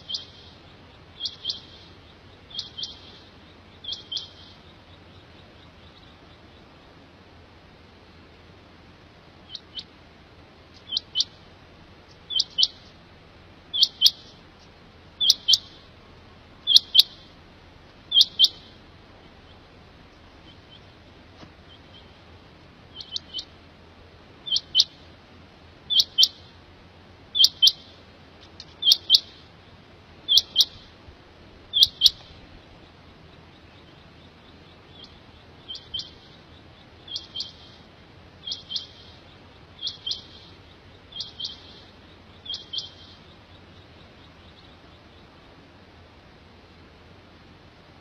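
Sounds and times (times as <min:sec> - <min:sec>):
quail two-note calls: 0:01.2 - 0:03.2, 0:03.8 - 0:04.6, 0:10.8 - 0:11.4, 0:13.7 - 0:14.3, 0:15.2 - 0:15.9, 0:16.6 - 0:17.4, 0:18.1 - 0:18.8, 0:22.9 - 0:23.5, 0:24.4 - 0:25.0, 0:27.3 - 0:27.9, 0:28.8 - 0:29.4, 0:30.3 - 0:30.8, 0:31.7 - 0:32.3, 0:34.9 - 0:36.4, 0:37.0 - 0:37.8, 0:38.4 - 0:39.2, 0:39.8 - 0:43.3.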